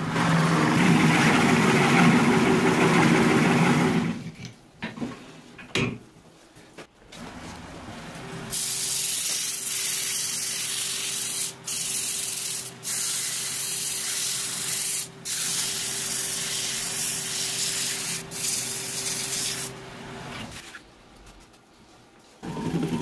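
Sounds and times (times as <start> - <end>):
sandpaper hissing on spinning wood: 8.5 - 19.7.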